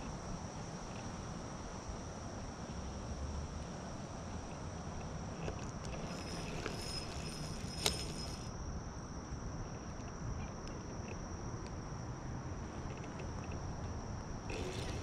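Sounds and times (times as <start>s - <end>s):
insects buzzing drone: 0.0s - 15.0s.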